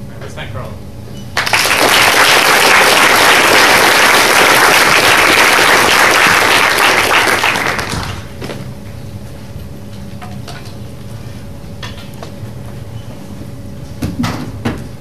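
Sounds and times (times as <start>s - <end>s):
audience applauding: 1.4s - 8.4s.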